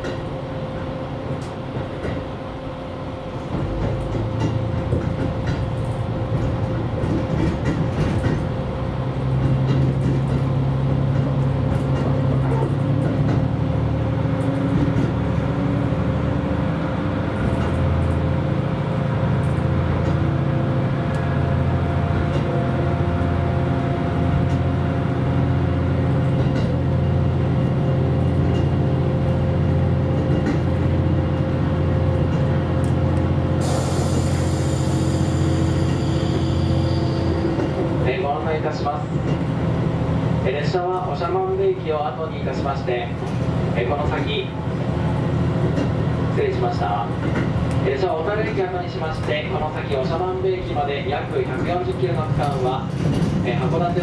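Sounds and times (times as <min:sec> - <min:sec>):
diesel railcar engine drone: 0:00.0 - 0:54.0
hiss: 0:33.6 - 0:37.1.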